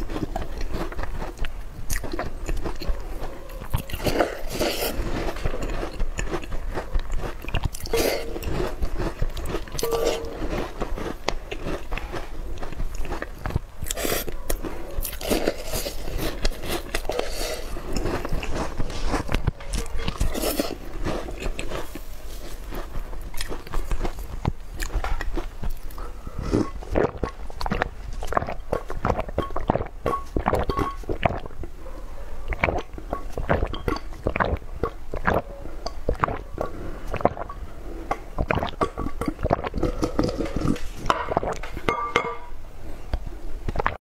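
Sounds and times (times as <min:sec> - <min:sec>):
wet chewing and mouth smacks: 0:00.0 - 0:31.8, 0:32.5 - 0:41.8
gulping drink: 0:26.3 - 0:31.7, 0:32.5 - 0:41.6.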